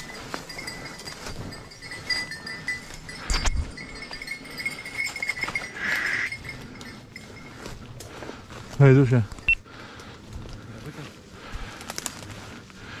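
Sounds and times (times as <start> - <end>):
dog collar bell tinkling: 0.0 - 8.0
footsteps crunching dry leaves: 6.8 - 13.0.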